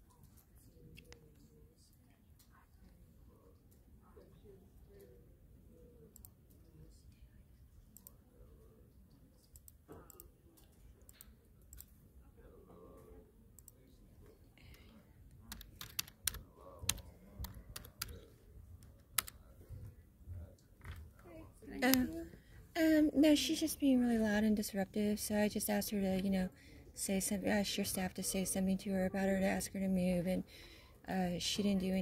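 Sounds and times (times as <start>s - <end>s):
keyboard typing: 14.7s - 19.5s.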